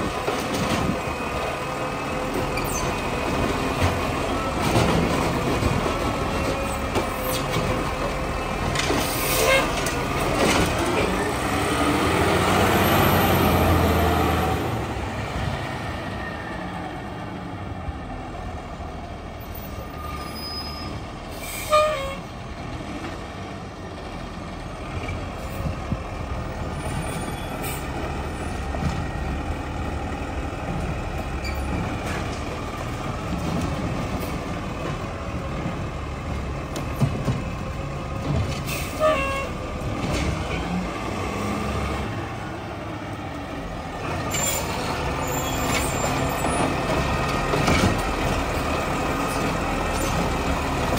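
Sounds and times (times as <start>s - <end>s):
garbage truck diesel engine: 0.0s - 50.9s
brake squeals: 0.8s - 3.3s, 6.1s - 11.4s, 19.4s - 22.3s, 26.7s - 28.7s, 31.3s - 32.2s, 38.5s - 39.7s, 44.2s - 46.8s, 47.7s - 50.4s.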